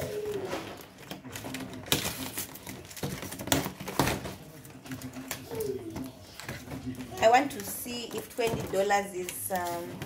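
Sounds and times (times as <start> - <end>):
packing tape ripping: 0.0 - 4.2
cardboard rustling: 0.0 - 10.0.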